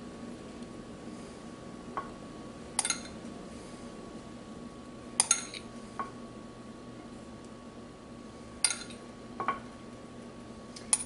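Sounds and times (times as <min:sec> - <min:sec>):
faint steady hum: 0:00.0 - 0:11.0
metal spoon clinking on glass: 0:05.2 - 0:05.6.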